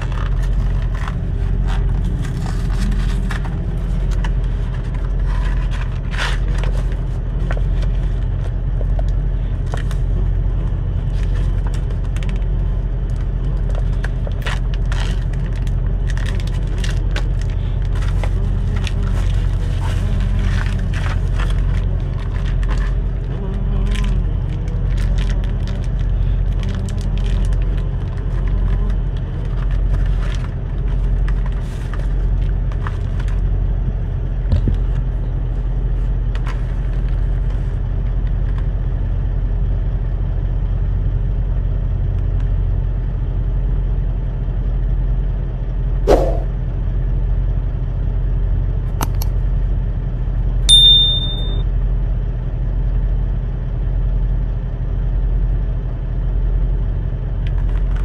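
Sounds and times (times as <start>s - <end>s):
cardboard and plastic crinkling: 0.0s - 8.6s, 11.0s - 33.4s
diesel engine idling: 0.0s - 50.7s
short high chime: 50.7s - 51.6s.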